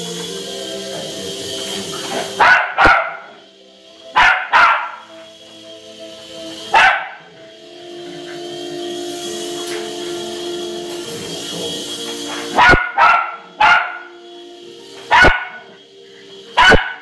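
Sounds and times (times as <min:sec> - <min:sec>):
music from a television: 0:00.0 - 0:17.0
small dog barking: 0:02.4 - 0:03.4, 0:04.2 - 0:05.0, 0:06.8 - 0:07.2, 0:12.6 - 0:14.1, 0:15.1 - 0:15.6, 0:16.6 - 0:17.0.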